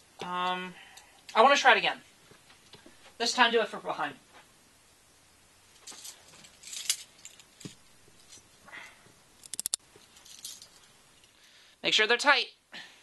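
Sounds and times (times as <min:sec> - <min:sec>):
clothing rustle: 0:05.6 - 0:08.6
handcuff chain jingling: 0:05.9 - 0:07.6, 0:10.0 - 0:10.9
handcuff ratchet clicks: 0:09.4 - 0:09.8.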